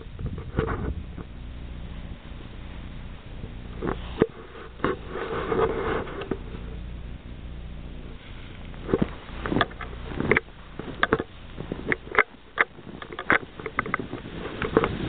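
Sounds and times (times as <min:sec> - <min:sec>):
footsteps crunching in snow: 0:08.2 - 0:15.0.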